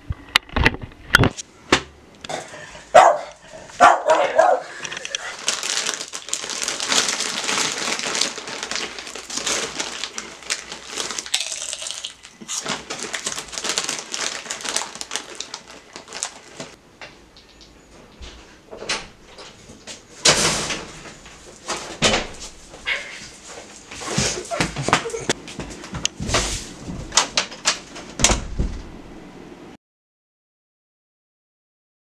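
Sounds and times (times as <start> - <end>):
crunching dry cereal: 4.7 - 16.8
loud thump: 28.2 - 29.0.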